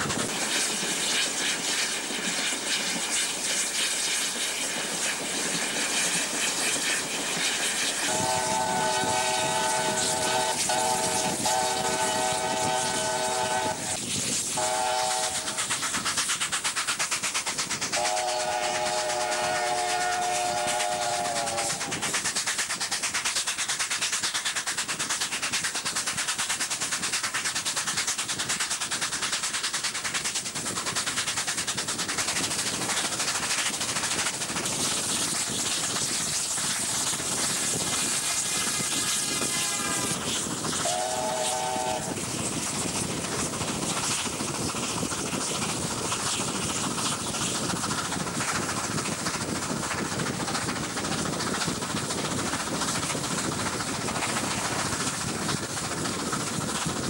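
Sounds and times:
freight train passing: 0.0 - 27.3, 28.3 - 57.0
train wheels on rail: 0.0 - 57.0
train horn blasts: 8.1 - 14.0, 14.6 - 15.6, 18.0 - 21.9, 39.0 - 40.2, 40.8 - 42.2.

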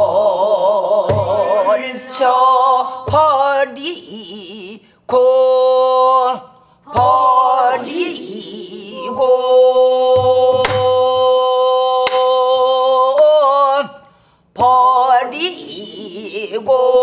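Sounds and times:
woman singing a long note: 1.2 - 3.6.

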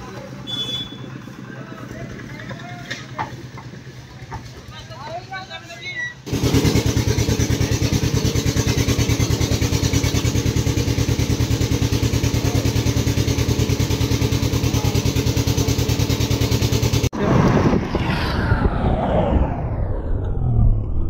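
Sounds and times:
boat engine chugging: 6.3 - 17.1.

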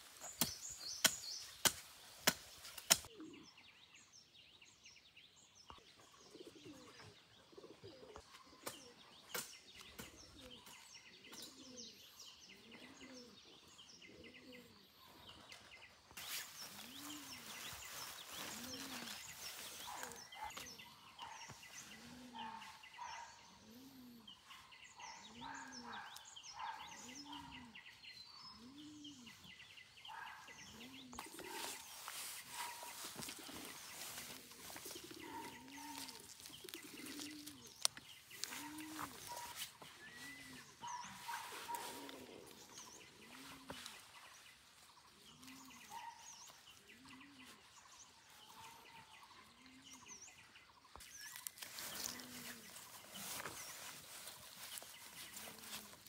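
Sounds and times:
small birds chirping: 0.0 - 56.0
bird cooing: 3.1 - 3.5, 6.3 - 9.0, 10.0 - 14.9, 16.6 - 24.4, 28.5 - 29.5, 30.1 - 44.1, 45.2 - 46.2, 46.8 - 47.6, 51.4 - 56.0.

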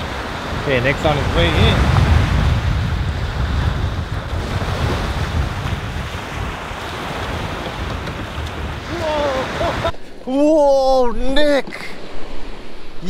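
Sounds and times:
ocean surf washing up: 0.0 - 13.0
wind buffeting microphone: 0.0 - 13.0.

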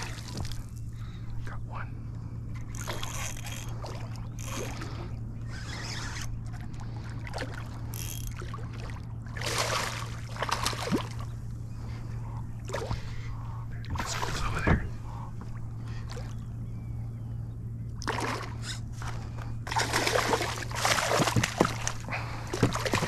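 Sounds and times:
steady low hum: 0.0 - 23.0
fish thrashing and splashing: 6.7 - 11.3, 18.0 - 23.0.

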